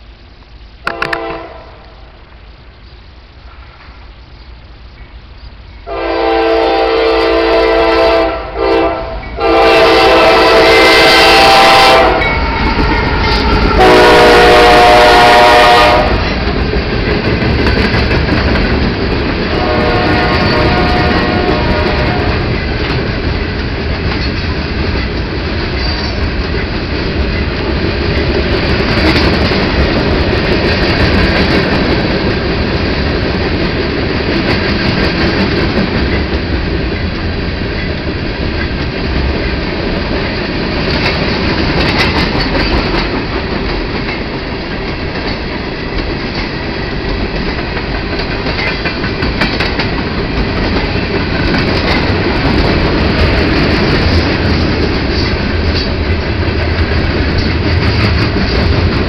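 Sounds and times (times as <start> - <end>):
train wheels rumbling on rails: 0.0 - 59.0
clickety-clack over rail joints: 12.2 - 59.0.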